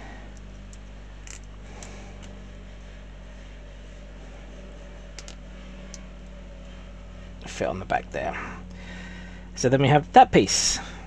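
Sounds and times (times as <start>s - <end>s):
steady low hum: 0.0s - 11.0s
plastic parts clicking together: 0.7s - 1.5s, 5.2s - 5.4s.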